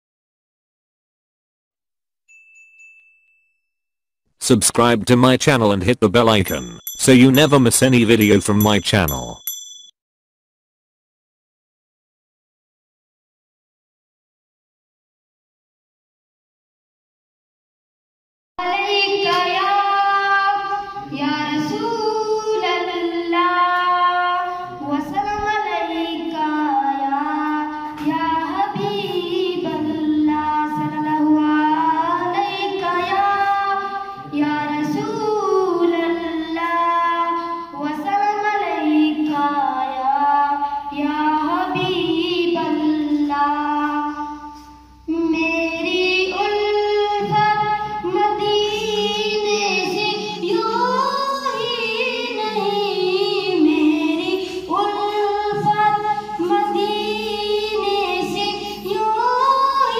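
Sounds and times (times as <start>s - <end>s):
boy singing unaccompanied: 18.6s - 59.9s.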